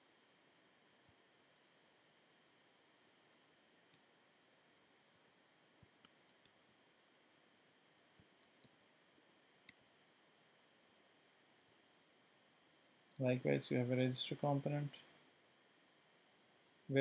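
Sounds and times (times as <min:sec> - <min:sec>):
mouse and keyboard clicks: 0:06.0 - 0:06.6, 0:08.4 - 0:08.8, 0:09.5 - 0:10.0.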